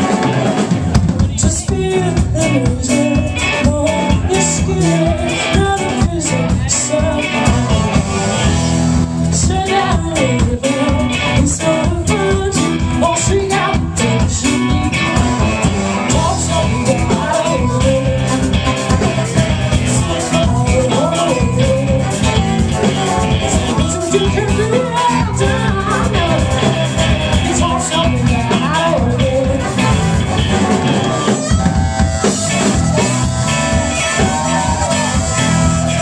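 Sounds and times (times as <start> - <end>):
live band playing: 0.0 - 36.0
woman singing: 1.2 - 8.1, 9.3 - 30.0
horn section: 7.4 - 8.8, 14.0 - 20.8, 29.3 - 36.0.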